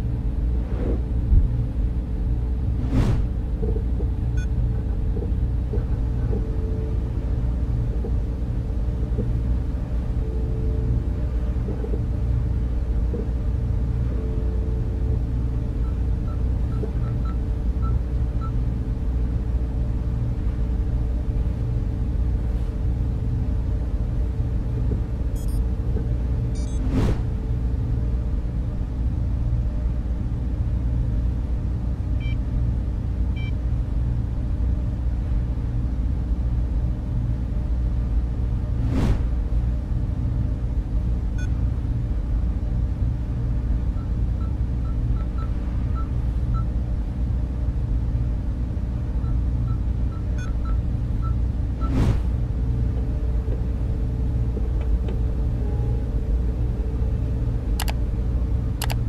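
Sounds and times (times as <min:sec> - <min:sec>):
bass-heavy synth drone: 0:00.0 - 0:59.0
whoosh transition effects: 0:02.8 - 0:03.3.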